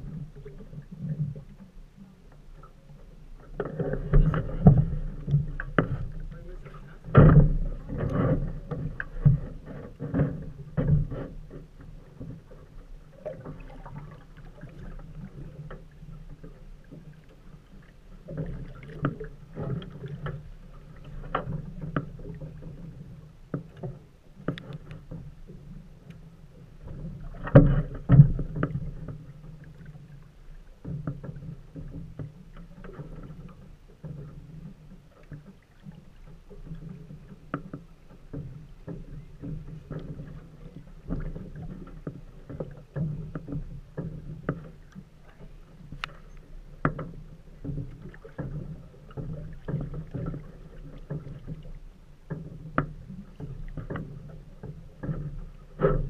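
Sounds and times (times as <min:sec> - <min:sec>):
waves lapping against metal hull: 0:00.0 - 0:56.0
knocks on the hull: 0:07.0 - 0:11.3.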